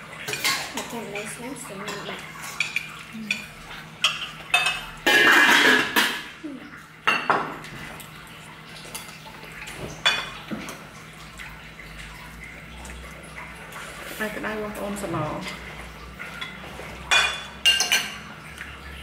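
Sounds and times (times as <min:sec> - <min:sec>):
metal utensils clinking on dishes: 0:00.2 - 0:06.3, 0:14.5 - 0:18.4.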